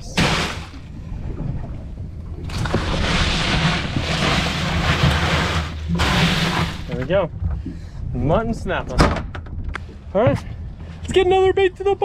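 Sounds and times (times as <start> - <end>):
low steady hum: 0.0 - 12.0
ice shifting: 2.5 - 7.2.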